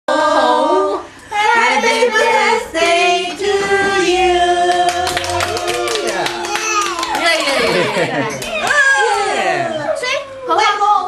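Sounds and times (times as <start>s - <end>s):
group singing a celebration song: 0.1s - 6.4s.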